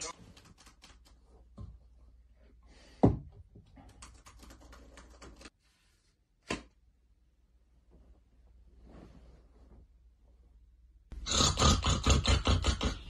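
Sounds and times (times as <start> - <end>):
typing on laptop keyboard: 0.2 - 1.2, 3.9 - 5.5.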